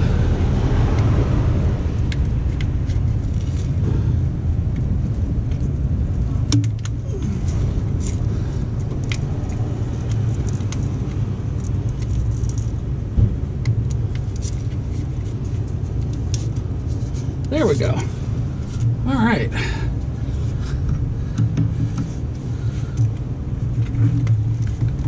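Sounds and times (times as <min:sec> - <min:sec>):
low rumble: 0:00.0 - 0:25.0
cables clicking and knocking: 0:04.6 - 0:16.7, 0:20.8 - 0:25.0.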